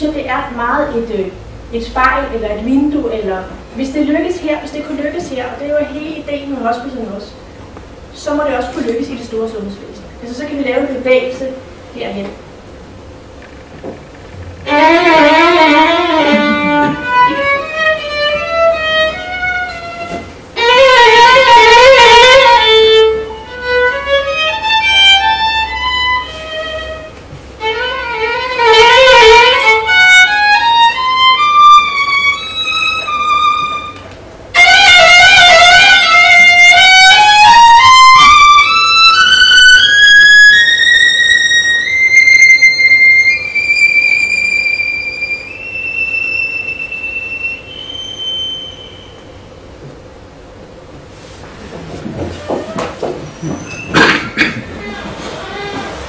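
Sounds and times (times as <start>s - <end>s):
solo violin: 14.6s - 49.3s.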